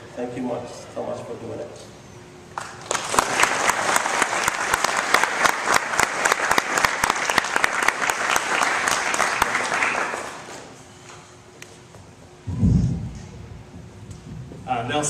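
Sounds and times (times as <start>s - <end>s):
audience applauding: 2.6s - 10.7s.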